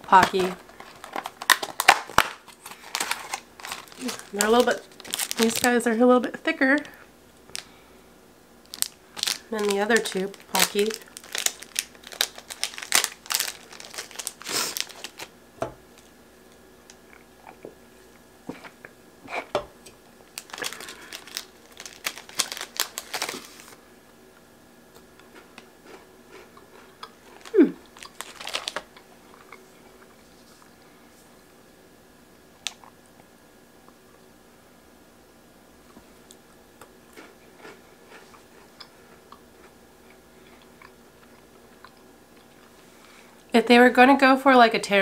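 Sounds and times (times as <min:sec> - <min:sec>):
plastic wrapper crinkling: 0:00.0 - 0:05.9, 0:08.6 - 0:16.1, 0:20.2 - 0:23.8, 0:27.2 - 0:29.0.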